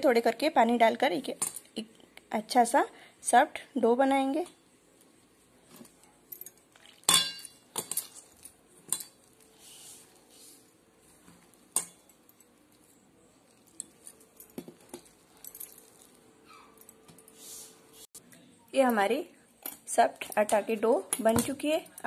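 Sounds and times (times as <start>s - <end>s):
glass bangles clinking: 6.2s - 9.3s, 11.8s - 17.3s.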